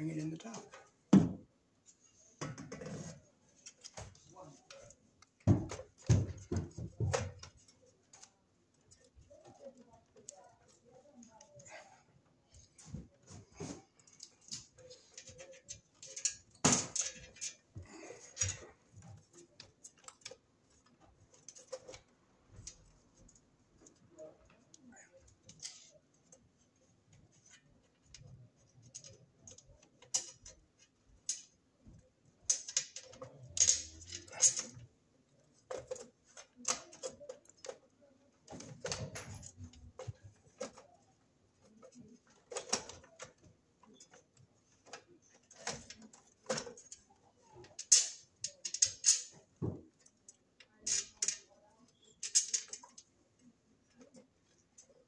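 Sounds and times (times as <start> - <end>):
sheet metal clicking and scraping: 13.6 - 23.0, 27.1 - 31.6, 32.4 - 34.8, 38.5 - 55.0.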